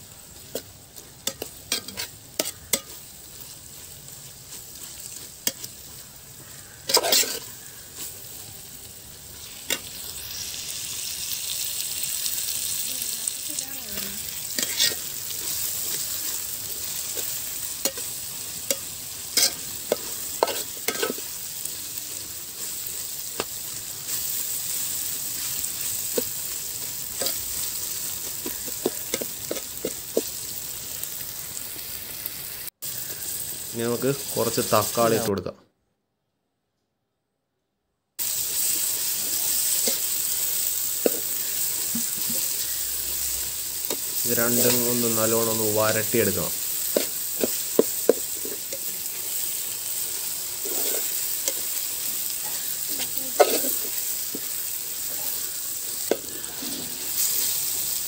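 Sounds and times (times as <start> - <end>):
onions sizzling in a pot: 0.0 - 35.5, 38.2 - 58.0
metal spoon scraping a pot: 6.9 - 7.5, 14.5 - 16.4, 19.4 - 21.3, 50.6 - 51.2.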